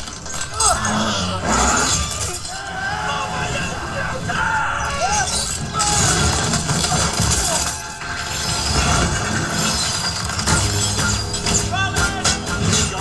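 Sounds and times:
wheels and hooves clattering on ice: 0.0s - 13.0s
orchestral score: 0.7s - 13.0s
ice cracking and shattering: 5.0s - 13.0s.

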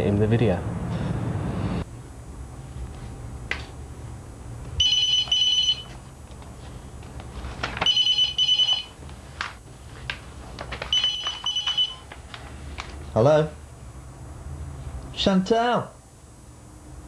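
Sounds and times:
telephone ringing electronic trill: 4.8s - 6.0s, 7.9s - 9.0s, 10.9s - 12.0s.

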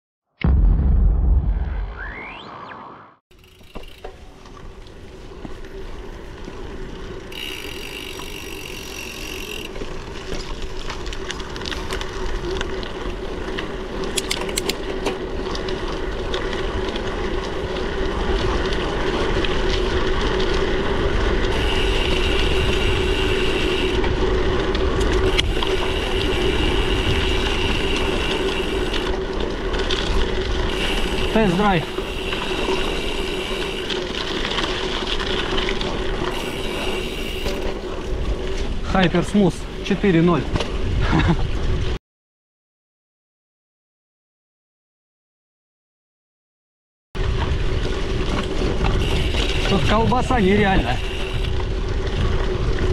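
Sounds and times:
bicycle tyres and drivetrain hum: 3.3s - 42.0s, 47.2s - 52.9s
wind on microphone: 50.8s - 52.9s.

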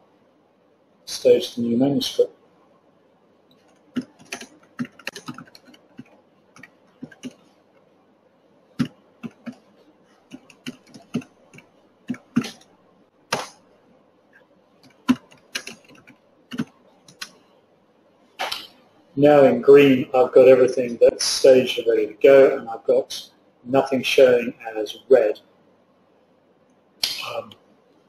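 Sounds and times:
keyboard typing clicks: 3.5s - 7.4s, 8.8s - 9.6s, 10.3s - 12.7s, 14.8s - 17.4s.

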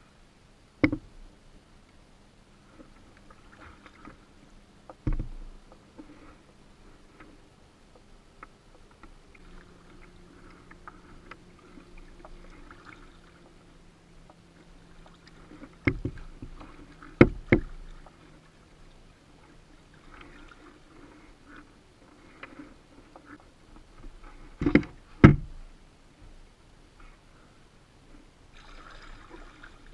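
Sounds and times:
sharp knocks on hull: 0.8s - 1.1s, 5.0s - 5.5s, 15.8s - 16.6s, 17.2s - 17.8s, 24.6s - 25.6s
paddle splashing water: 2.5s - 26.4s, 28.2s - 29.9s.

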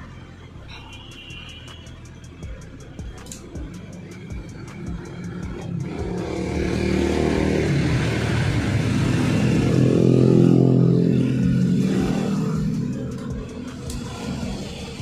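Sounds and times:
motorcycle engine passing: 5.3s - 15.0s.

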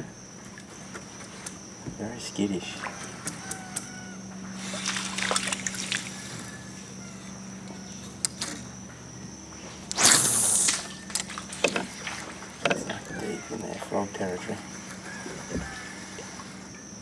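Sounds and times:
faint high insect drone: 0.0s - 17.0s
low steady hum: 0.0s - 17.0s
water lapping and dripping: 4.5s - 7.0s, 10.6s - 16.8s
short loud rush of noise: 9.9s - 10.9s.

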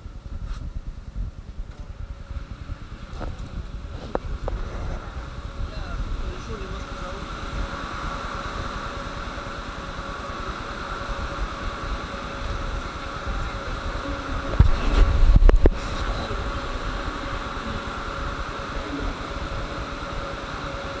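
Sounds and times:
train car ventilation hum: 0.0s - 21.0s.

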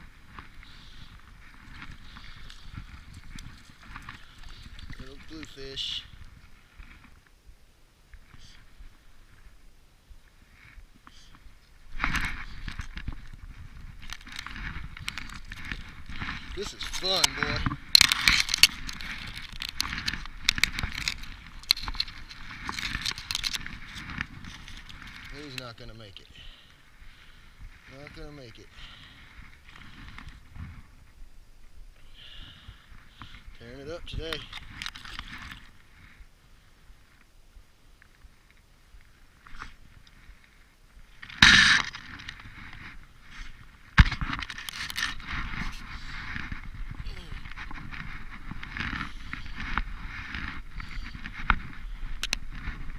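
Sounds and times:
clicking and rustling at microphone: 0.0s - 7.4s, 10.6s - 26.2s, 33.0s - 36.2s, 38.0s - 52.9s
fishing reel crackles and clicks: 14.0s - 25.8s.

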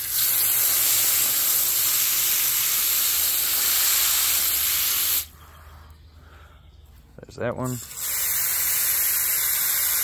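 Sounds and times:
hose water spraying: 0.0s - 5.3s, 7.7s - 10.0s.

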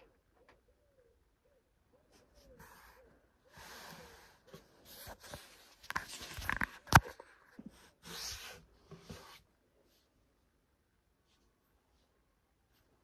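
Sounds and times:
handling noise rustling: 4.0s - 10.1s.

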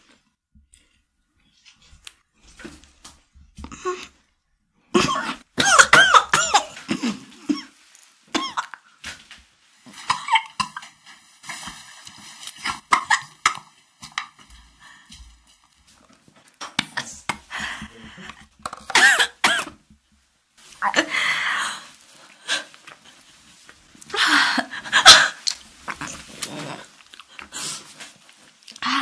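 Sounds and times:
woman coughing: 4.9s - 7.7s, 8.4s - 8.8s, 12.7s - 13.6s, 18.9s - 19.8s, 24.9s - 25.4s.

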